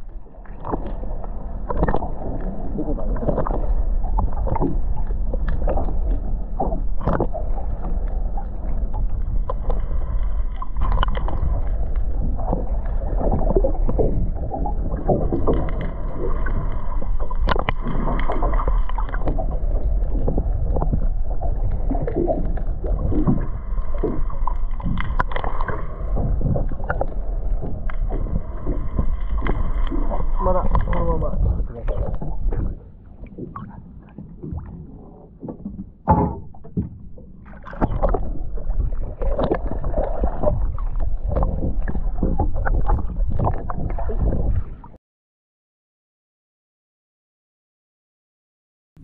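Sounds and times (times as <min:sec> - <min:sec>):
boat engine low rumble: 0:00.0 - 0:45.0
water slapping against hull: 0:00.3 - 0:45.0
irregular knocks: 0:35.5 - 0:37.2.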